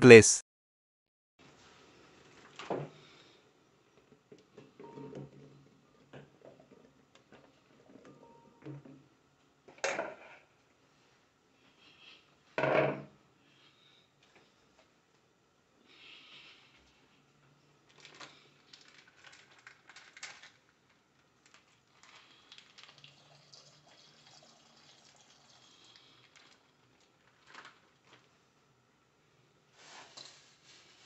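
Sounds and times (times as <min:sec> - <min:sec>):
milk trickling and splashing: 0:21.5 - 0:28.2.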